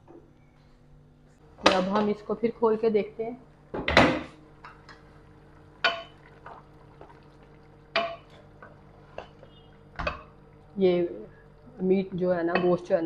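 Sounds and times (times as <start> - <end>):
steady low hum: 0.0 - 13.0
wooden spoon knocking metal pot: 5.8 - 6.2, 7.9 - 8.4, 10.0 - 10.4, 12.4 - 13.0.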